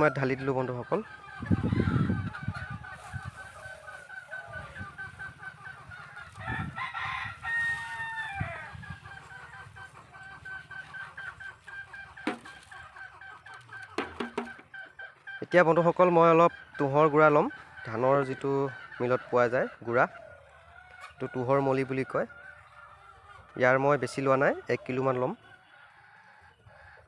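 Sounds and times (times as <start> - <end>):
rooster crowing: 0.0 - 0.4, 6.4 - 8.9
chickens clucking: 0.0 - 27.0
sharp knocks: 12.2 - 12.5, 13.9 - 14.7.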